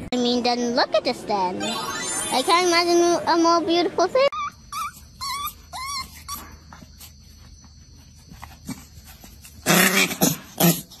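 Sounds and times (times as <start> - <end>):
puppy whining: 4.3 - 7.6
puppy yapping: 4.4 - 6.6.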